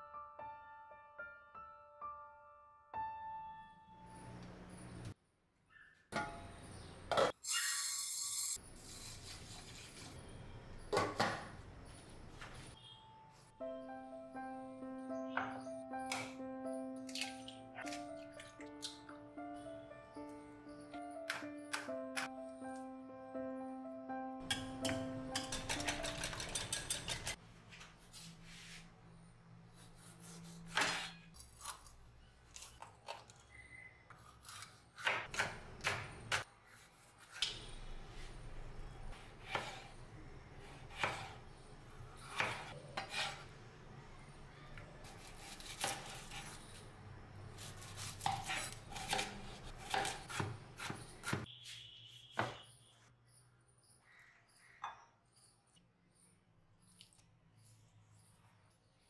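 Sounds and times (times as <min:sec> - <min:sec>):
knife chopping on wooden board: 0:40.9 - 0:41.3, 0:42.3 - 0:43.4, 0:47.8 - 0:51.5.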